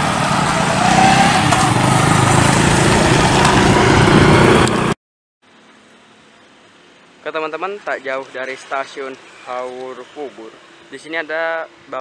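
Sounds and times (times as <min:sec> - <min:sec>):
motorcycle engines passing: 0:00.0 - 0:05.0.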